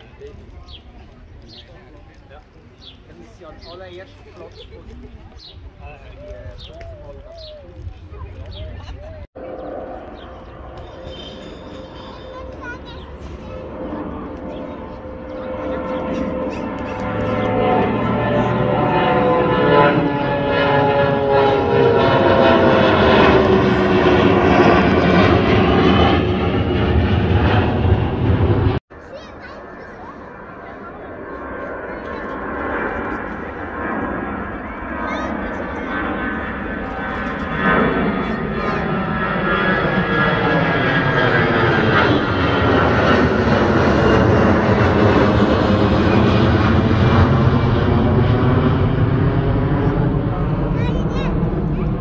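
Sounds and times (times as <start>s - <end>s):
jet airliner passing overhead: 0.0s - 52.0s.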